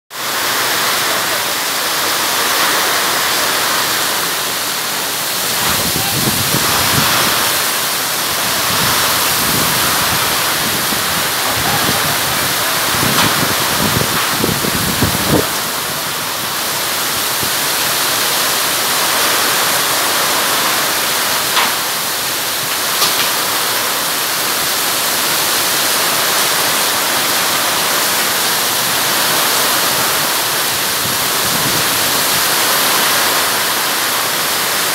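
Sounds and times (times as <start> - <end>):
heavy rain pouring: 0.1 - 34.9
storm wind gusts: 2.0 - 21.4, 25.6 - 33.8.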